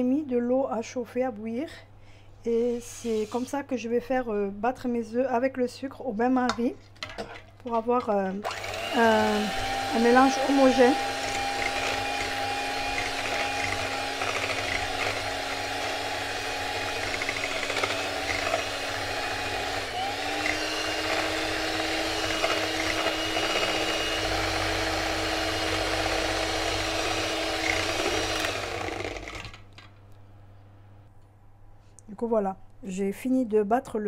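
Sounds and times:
electric hand mixer whirring: 0:08.4 - 0:29.7.

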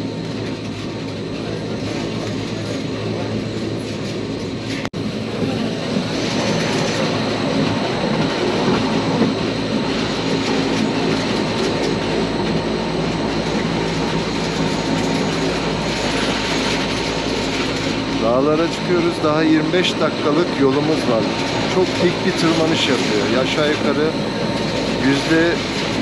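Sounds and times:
train rolling rumble and motor hum: 0:00.0 - 0:26.0.

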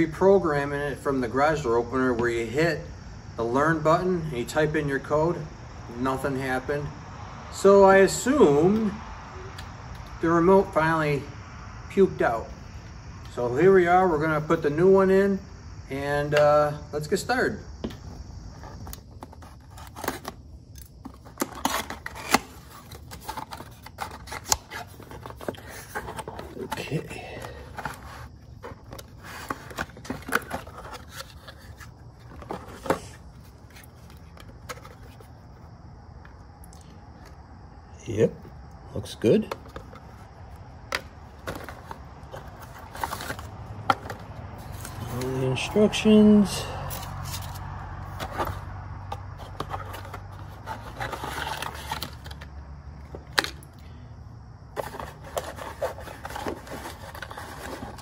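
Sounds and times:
plastic scraping and rubbing: 0:18.5 - 0:35.6, 0:39.5 - 0:45.3, 0:47.2 - 0:52.5, 0:54.8 - 0:58.0
cardboard box being opened: 0:18.6 - 0:20.4, 0:21.0 - 0:35.4, 0:41.4 - 0:45.3, 0:49.4 - 0:52.4, 0:54.8 - 0:58.0.

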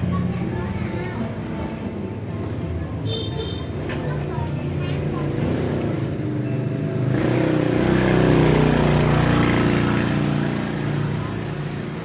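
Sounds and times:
vehicle engine passing by: 0:05.0 - 0:12.0.

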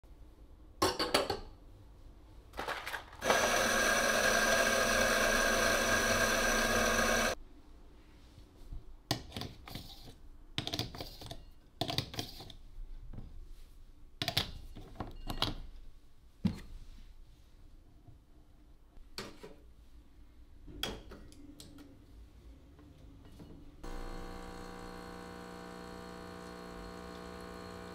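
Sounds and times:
electric coffee grinder running: 0:03.2 - 0:07.4, 0:23.8 - 0:27.9.

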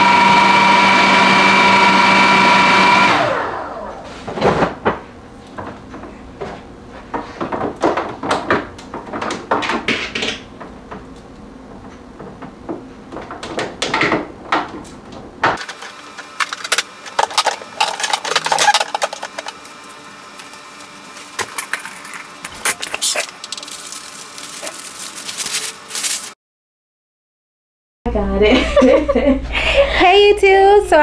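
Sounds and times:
low background hum: 0:28.1 - 0:31.0.

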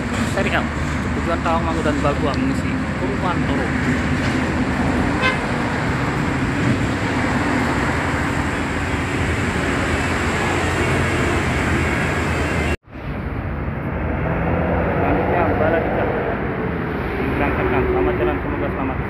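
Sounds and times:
diesel bus engine running: 0:00.0 - 0:13.7
road traffic noise: 0:00.0 - 0:19.0.

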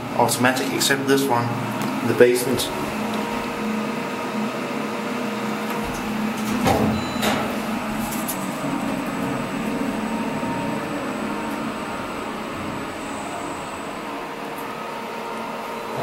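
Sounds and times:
elevator hum: 0:00.0 - 0:16.0
faint high whine: 0:02.6 - 0:16.0.

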